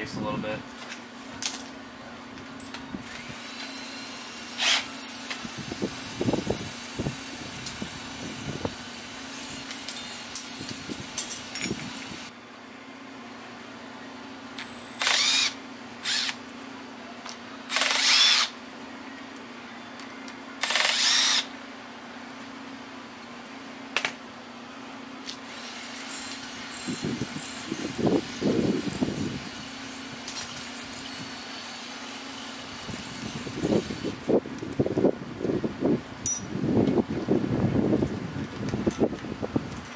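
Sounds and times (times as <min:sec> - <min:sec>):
power tool whirring: 0:03.0 - 0:12.3, 0:14.6 - 0:16.4, 0:17.7 - 0:18.6, 0:20.6 - 0:21.5, 0:25.4 - 0:34.2
metal clinks and scrapes: 0:08.8 - 0:12.3, 0:25.5 - 0:32.1.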